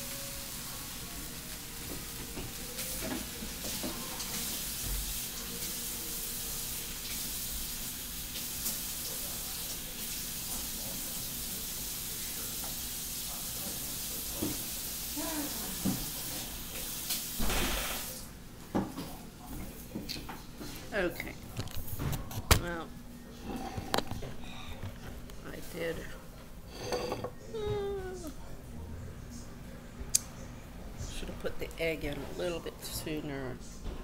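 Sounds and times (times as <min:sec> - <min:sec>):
food sizzling in frying pan: 0:00.0 - 0:18.2.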